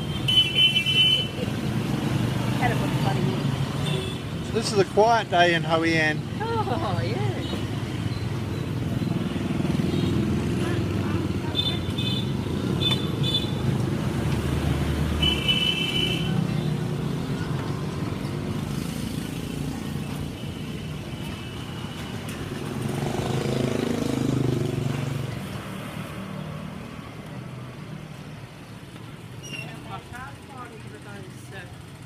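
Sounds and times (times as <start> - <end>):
street traffic: 0.0 - 32.0
vehicle passing: 22.5 - 26.8.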